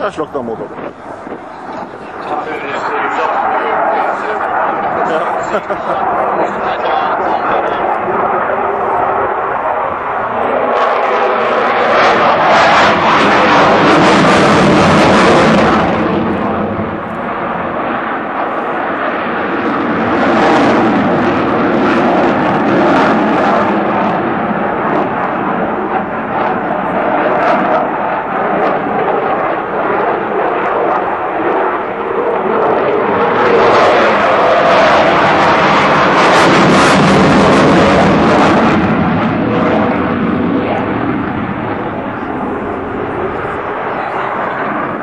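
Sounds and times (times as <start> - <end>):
jet engine roar: 0.0 - 45.0.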